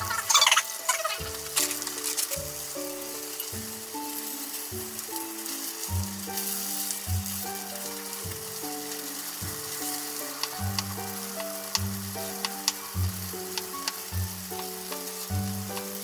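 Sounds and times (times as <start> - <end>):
background music: 0.0 - 16.0
tofu sizzling in frying pan: 0.0 - 16.0.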